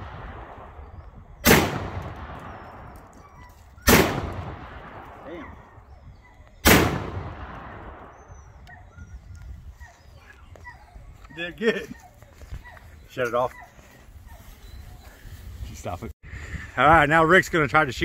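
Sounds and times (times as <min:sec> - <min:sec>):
shotgun blasts with echo: 0:00.0 - 0:03.1, 0:03.8 - 0:05.6, 0:06.6 - 0:08.5.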